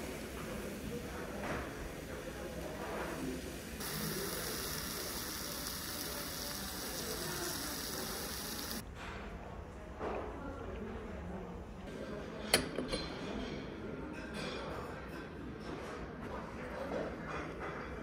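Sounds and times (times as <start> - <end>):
meat sizzling in a metal pan: 0.0 - 8.8
low background murmur: 0.0 - 18.0.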